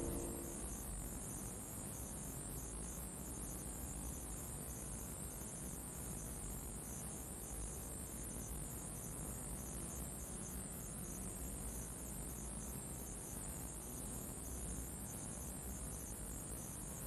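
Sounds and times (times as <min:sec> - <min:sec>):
pulsing high hiss: 0:00.0 - 0:00.7
ambient electronic drone: 0:00.0 - 0:00.8.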